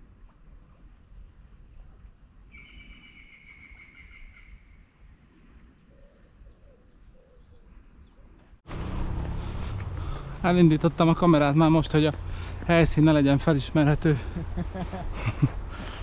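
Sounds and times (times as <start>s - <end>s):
low rumble: 8.7s - 10.5s.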